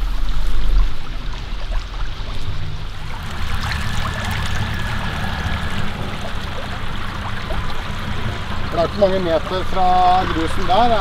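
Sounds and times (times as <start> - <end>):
steady low rumble: 0.0 - 11.0
stream trickling over gravel: 0.0 - 11.0
thin high tone: 3.0 - 10.6.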